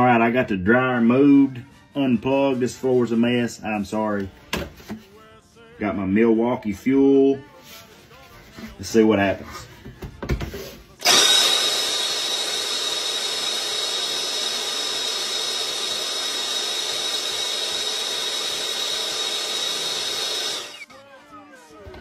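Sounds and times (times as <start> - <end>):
cordless blower whining: 11.0 - 20.9.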